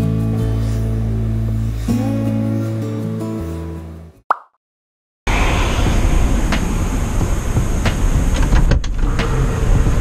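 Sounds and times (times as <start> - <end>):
acoustic guitar music: 0.0 - 4.2
cartoon plop sound effect: 4.3 - 4.6.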